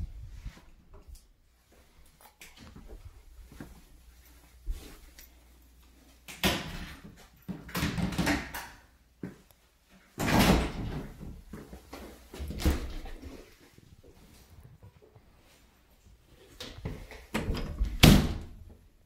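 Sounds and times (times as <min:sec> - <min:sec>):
doors knocking and rattling: 0:16.8 - 0:18.6.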